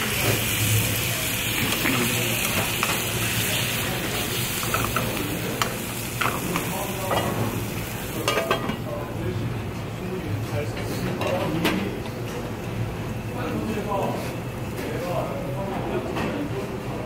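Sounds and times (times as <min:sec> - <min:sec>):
chicken sizzling in a frying pan: 0:00.0 - 0:09.0
metal tongs clinking on pan: 0:04.6 - 0:07.4, 0:08.2 - 0:08.8.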